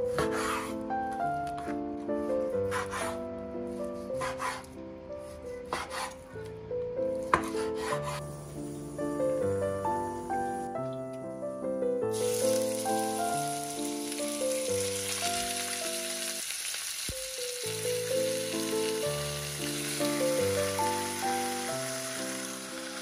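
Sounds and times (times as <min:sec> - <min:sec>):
background music: 0:00.0 - 0:16.4, 0:17.2 - 0:23.0
meat sizzling in a wok: 0:12.1 - 0:23.0.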